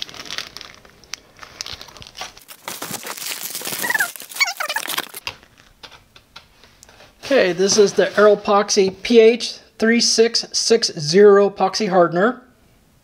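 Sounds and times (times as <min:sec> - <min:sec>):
plastic packaging crinkling: 0:00.0 - 0:05.8
short squeaks: 0:03.7 - 0:05.2.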